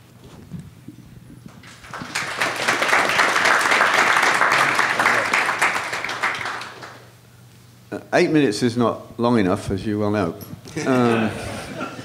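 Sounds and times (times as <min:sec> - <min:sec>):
audience applauding: 0:01.5 - 0:07.2.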